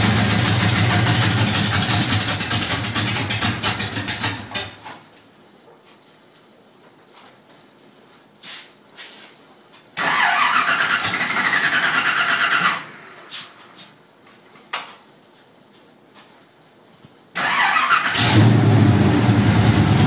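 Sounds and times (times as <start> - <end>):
engine starter cranking: 10.0 - 12.9, 17.4 - 18.7.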